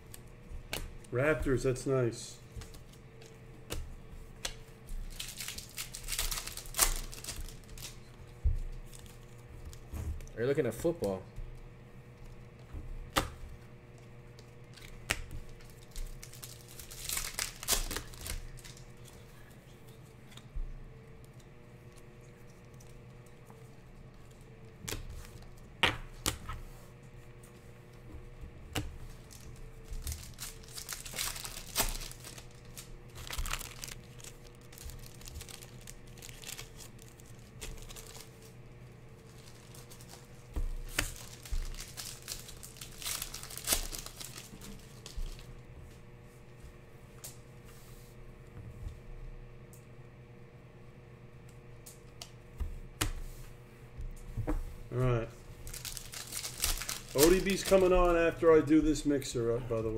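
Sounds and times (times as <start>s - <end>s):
foil wrappers crinkling: 4.5s - 9.9s, 14.3s - 19.2s, 29.0s - 45.6s, 55.6s - 59.1s.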